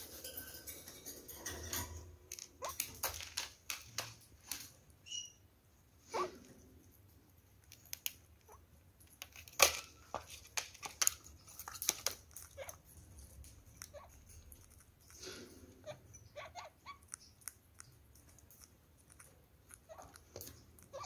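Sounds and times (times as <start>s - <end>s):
beaks and feet clicking: 10.4s - 21.0s.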